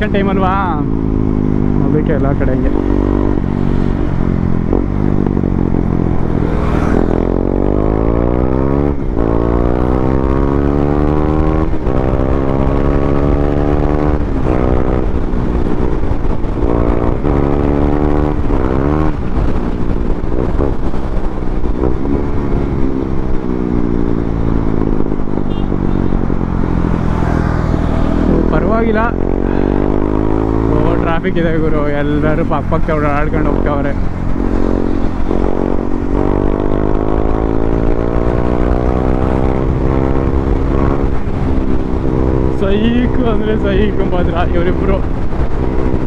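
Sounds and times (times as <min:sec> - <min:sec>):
motorcycle engine accelerating: 0:00.0 - 0:46.0.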